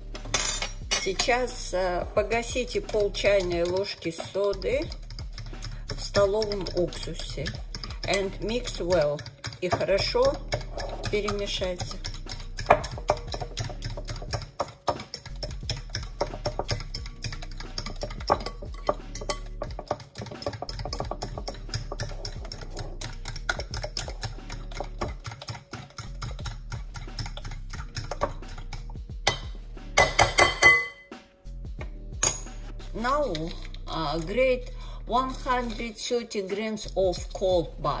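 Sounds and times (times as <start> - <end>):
background music: 0.0 - 38.0
spoon stirring wet batter: 1.0 - 30.8, 32.8 - 37.8
spoon clicking against glass: 4.5 - 30.8.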